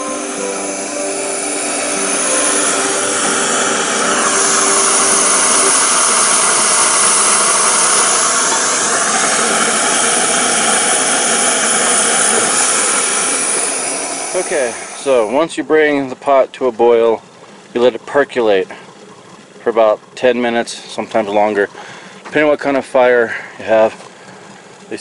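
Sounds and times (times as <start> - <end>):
background music: 0.0 - 15.0
loud rushing noise: 0.0 - 15.4.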